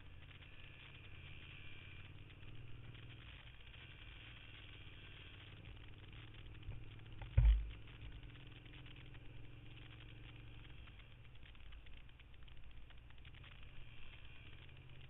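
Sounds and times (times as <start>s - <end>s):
motorcycle engine running: 0.0s - 15.0s
wind and road noise: 0.0s - 15.0s
heavy thump: 7.3s - 7.8s.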